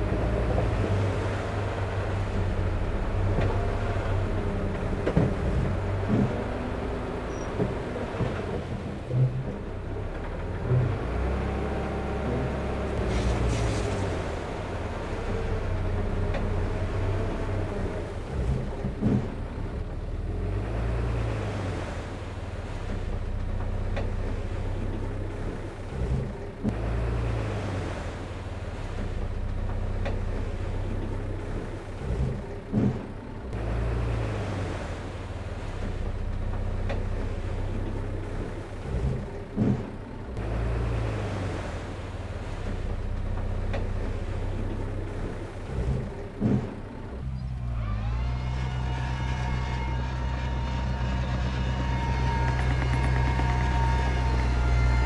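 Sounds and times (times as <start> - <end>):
diesel machinery running: 0.0 - 55.0
engine whine: 0.0 - 55.0
machinery clunks: 15.2 - 19.8, 29.0 - 33.3, 35.8 - 40.2, 42.6 - 55.0.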